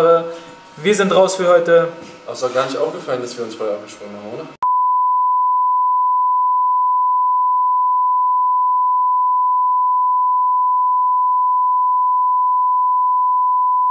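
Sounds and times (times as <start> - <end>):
steady test tone beep: 4.6 - 13.9.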